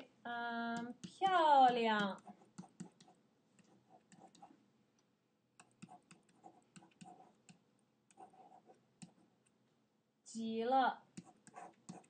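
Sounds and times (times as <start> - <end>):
stylus tapping on tablet: 0.7 - 4.6, 5.6 - 8.3, 11.2 - 12.0.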